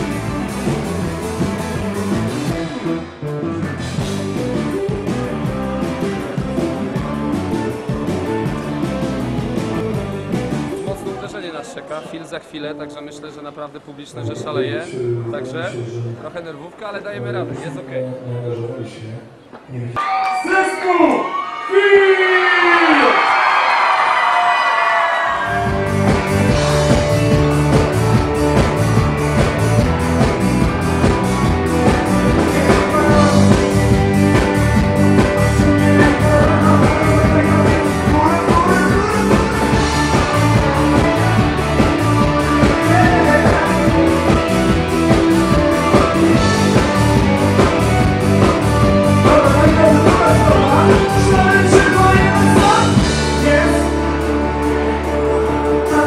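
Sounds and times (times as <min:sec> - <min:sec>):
steady drum beat: 0:00.0 - 0:03.0, 0:03.7 - 0:11.3, 0:25.4 - 0:54.9
guitar: 0:00.0 - 0:11.4, 0:23.2 - 0:56.0
person singing rock song: 0:25.4 - 0:56.0.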